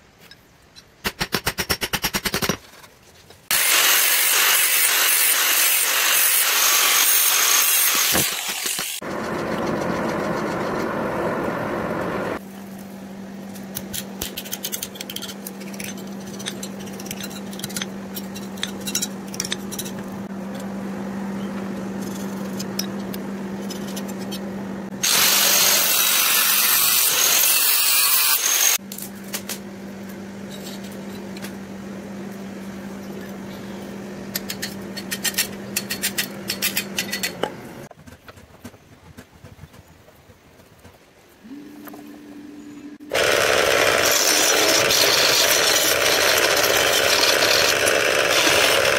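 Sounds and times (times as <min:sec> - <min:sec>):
power tool motor humming: 0:03.5 - 0:09.9, 0:43.1 - 0:48.9
harsh grinding on metal: 0:43.1 - 0:48.9.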